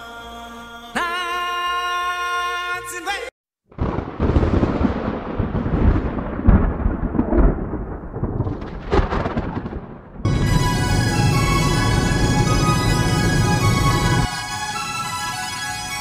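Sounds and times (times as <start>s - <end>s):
thunder rumbling: 3.7s - 14.3s
music with sustained tones: 10.3s - 16.0s.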